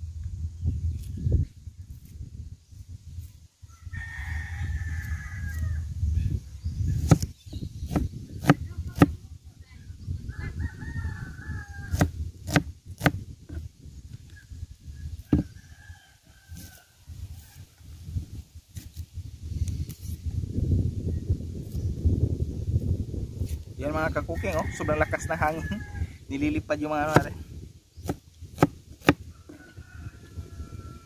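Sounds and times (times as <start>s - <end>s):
wind rumble on microphone: 0.0s - 31.0s
rooster crowing: 3.6s - 5.9s, 10.3s - 12.1s, 15.3s - 17.8s, 24.3s - 26.2s, 29.3s - 31.0s.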